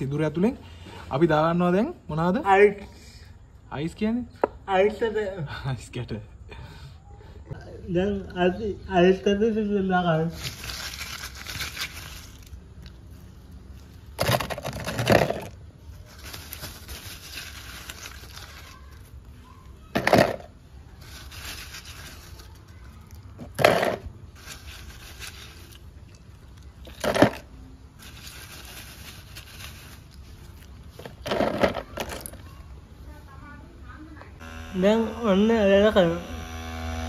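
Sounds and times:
ice cubes clattering in plastic bottle: 14.2s - 15.6s, 26.8s - 30.1s.

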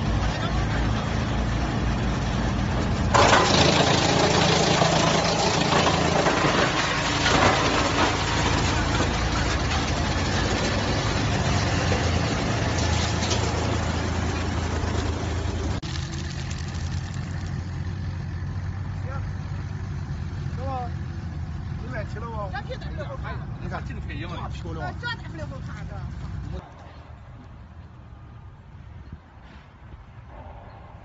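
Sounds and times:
wood chipper hum: 0.0s - 22.2s.

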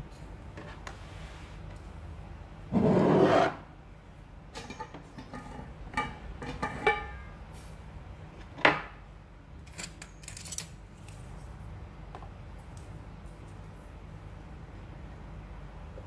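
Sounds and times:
glass jar scraping on counter: 2.7s - 3.6s.

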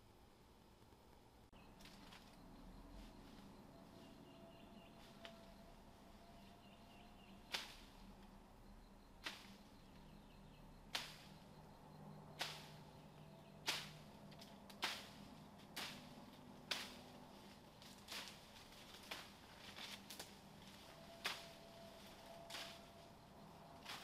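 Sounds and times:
faint steady background noise: 0.0s - 24.0s
sharp cracks: 7.4s - 7.9s, 10.9s - 11.4s, 12.4s - 12.9s, 13.6s - 17.1s.

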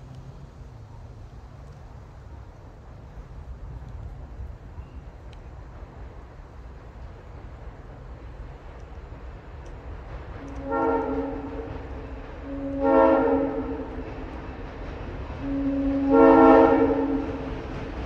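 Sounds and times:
train rumbling: 0.0s - 18.0s
locomotive air horn blasts: 10.4s - 14.0s, 15.4s - 17.5s.

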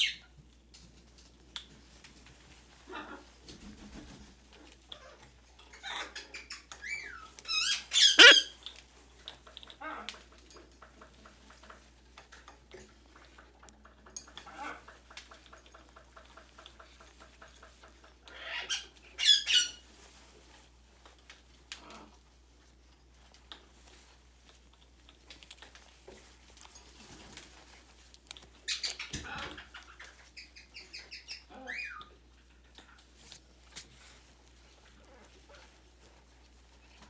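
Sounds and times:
parrot squeaking and squealing: 5.0s - 8.6s, 18.3s - 19.8s, 28.6s - 32.2s
parrot chattering: 7.5s - 8.6s.

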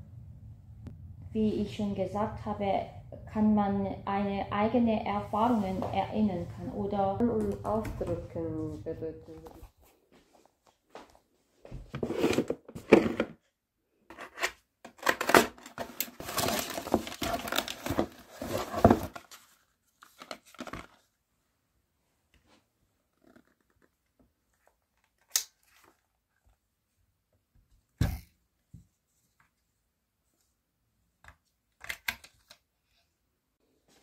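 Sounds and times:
sheet material crinkling and tearing: 15.0s - 21.0s.

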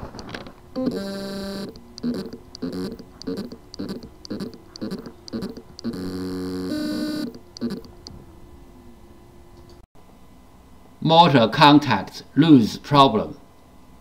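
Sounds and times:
motor electrical buzz: 0.6s - 9.0s
stuttering motor pulses: 0.8s - 8.0s.

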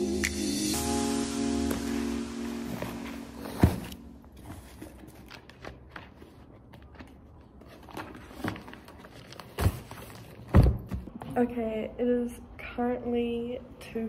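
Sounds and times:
paper rustling: 2.6s - 10.6s.

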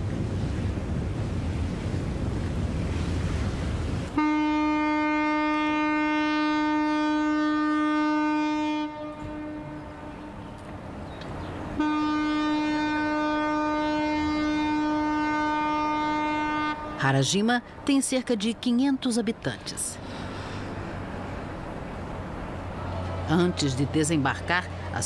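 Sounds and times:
wind and sea noise: 0.0s - 25.0s
ship's horn blasts: 4.1s - 10.7s, 11.7s - 17.3s.

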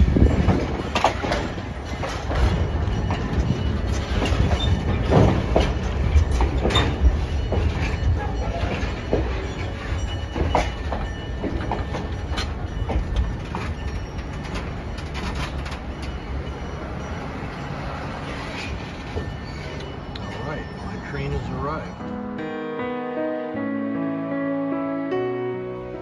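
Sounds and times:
railcar wheels clacking over rail joints: 0.0s - 22.2s.

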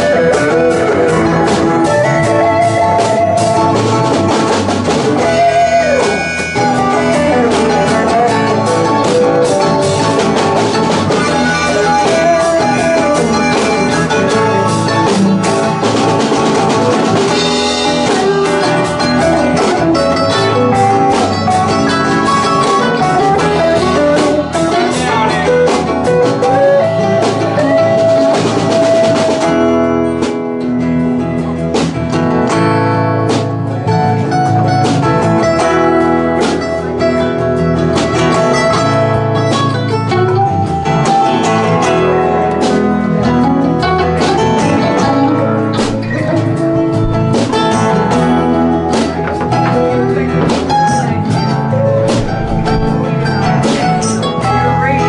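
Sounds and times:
electric guitar lead: 0.0s - 55.0s
live band playing: 0.0s - 55.0s.

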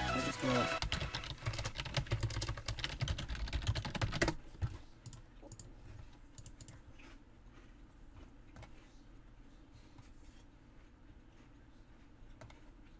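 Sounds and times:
keyboard typing: 0.1s - 4.4s, 6.4s - 6.8s.

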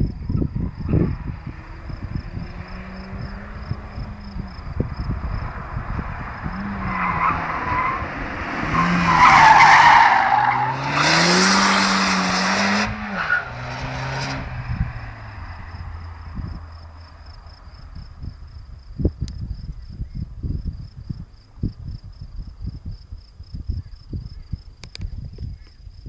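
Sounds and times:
car engine revving: 0.6s - 18.3s
tyres squealing: 8.7s - 12.0s.

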